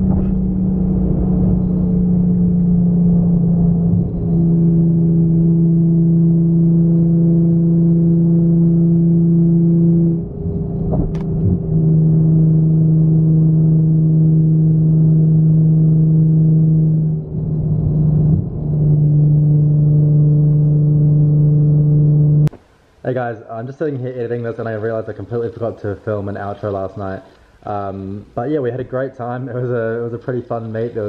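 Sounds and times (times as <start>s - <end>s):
car exhaust droning: 0.0s - 22.6s.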